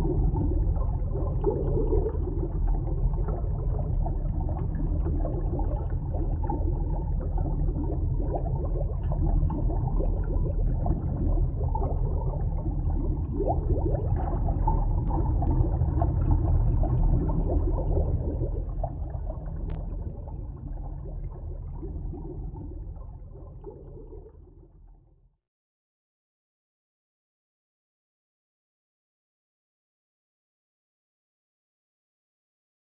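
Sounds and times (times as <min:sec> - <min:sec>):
underwater rumble with gurgling: 0:00.0 - 0:25.4.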